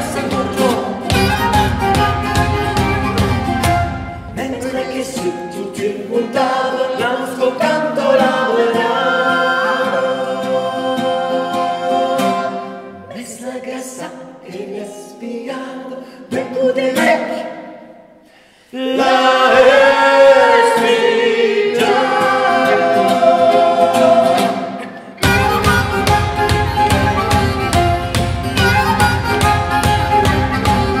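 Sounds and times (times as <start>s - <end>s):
voices singing in harmony: 0.0s - 2.4s, 3.4s - 17.9s, 18.6s - 27.9s
violin: 0.0s - 4.4s, 25.2s - 31.0s
sharp percussive beat: 0.0s - 5.5s, 24.3s - 31.0s
plucked string instrument: 0.0s - 13.2s, 20.7s - 31.0s
flute: 0.2s - 5.3s, 25.2s - 31.0s.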